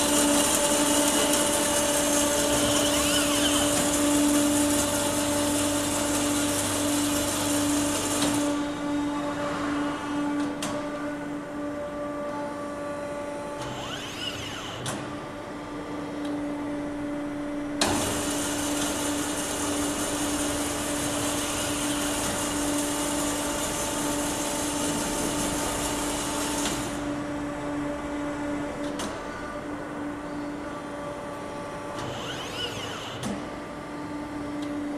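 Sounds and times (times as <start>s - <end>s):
band saw humming: 0.0s - 5.0s, 13.6s - 14.9s, 32.0s - 33.2s.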